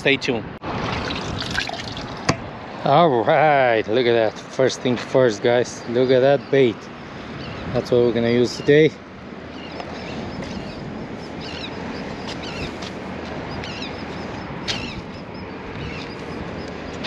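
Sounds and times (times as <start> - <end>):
open-air background noise: 0.0 - 17.0
bird chirping: 5.4 - 17.0.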